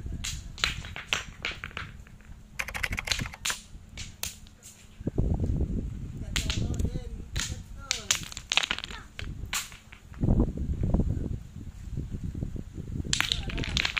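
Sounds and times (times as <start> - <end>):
sharp clicks and cracks: 0.2 - 4.5, 6.4 - 10.1, 13.1 - 13.9.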